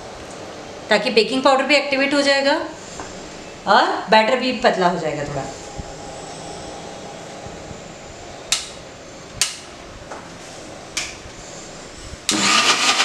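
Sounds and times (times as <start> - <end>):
mixer grinder motor whirring: 12.3 - 13.0.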